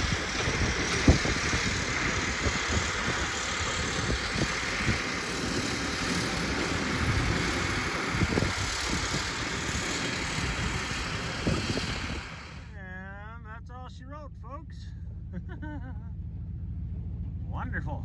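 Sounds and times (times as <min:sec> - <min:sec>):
wind gusting on microphone: 0:00.0 - 0:12.7
vehicle engine running: 0:00.0 - 0:18.0.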